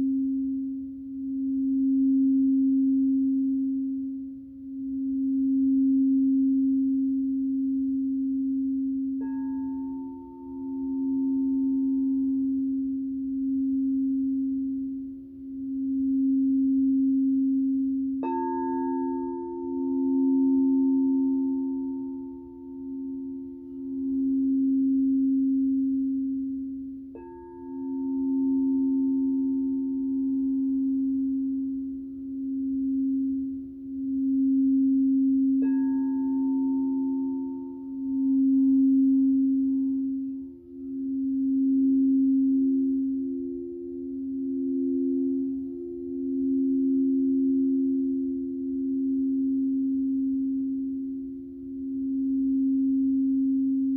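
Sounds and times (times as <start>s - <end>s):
singing bowl steady low tone: 0.0s - 53.9s.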